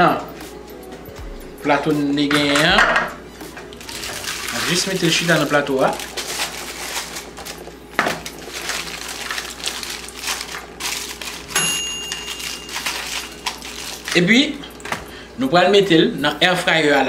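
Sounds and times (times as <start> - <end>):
aluminium foil crinkling: 3.7 - 15.1.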